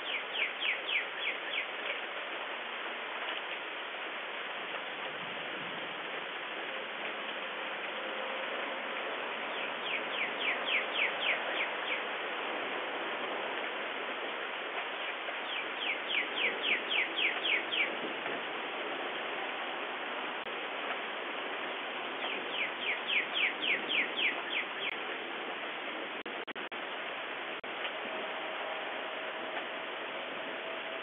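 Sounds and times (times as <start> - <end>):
songbird singing: 0.0 - 2.1, 9.3 - 12.2, 14.8 - 18.0, 22.2 - 25.0
rain hissing: 0.0 - 31.0.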